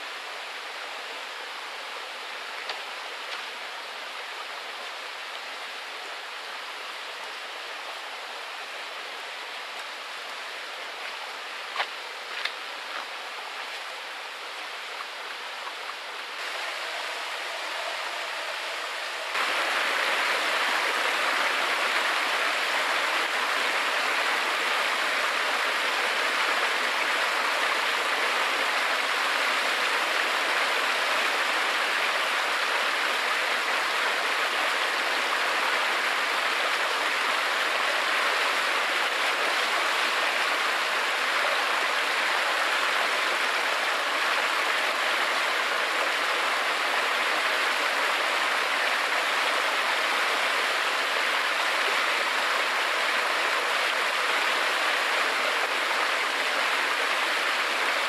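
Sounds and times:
stream water rushing into pool: 0:15.8 - 0:58.0.

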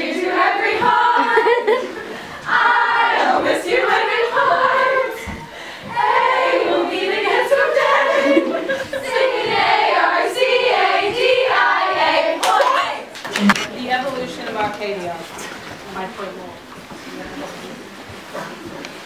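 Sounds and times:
girls singing without instruments: 0:00.0 - 0:13.2.

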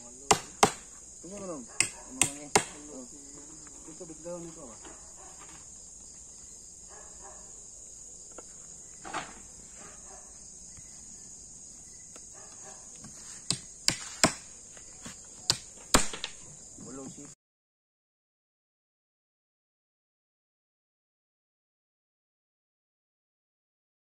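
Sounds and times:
cricket chorus chirring: 0:00.0 - 0:17.4
sharp knocks: 0:00.3 - 0:02.9, 0:13.5 - 0:14.5, 0:15.5 - 0:16.4.

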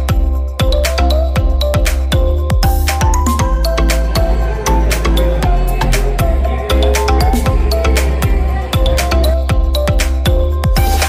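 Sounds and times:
deep bass: 0:00.0 - 0:11.0
steady drum beat: 0:02.4 - 0:11.0.

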